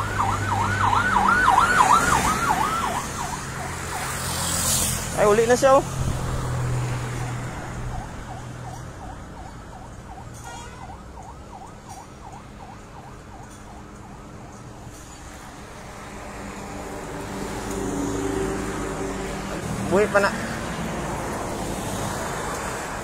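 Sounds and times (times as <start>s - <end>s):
siren yelping: 0.0s - 4.3s, 7.7s - 14.9s
road traffic noise: 0.0s - 23.0s.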